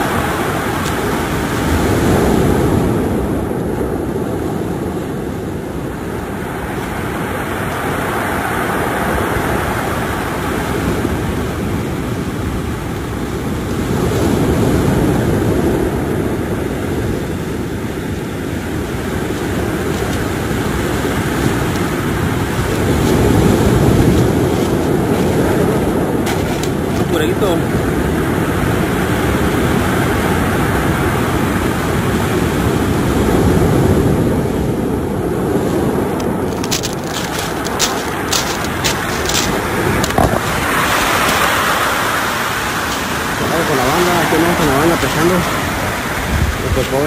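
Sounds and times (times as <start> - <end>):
surf breaking on cobble beach: 0.0 - 47.0.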